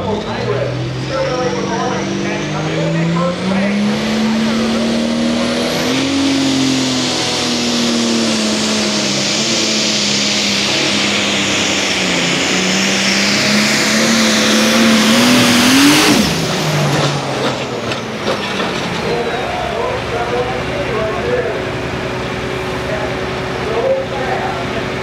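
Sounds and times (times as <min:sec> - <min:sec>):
tractor engine under load: 0:00.0 - 0:25.0.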